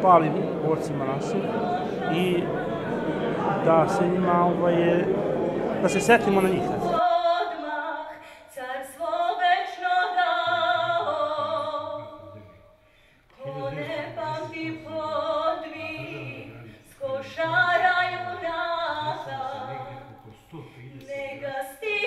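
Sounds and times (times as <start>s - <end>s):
person singing: 0.9s - 4.6s, 13.4s - 20.1s.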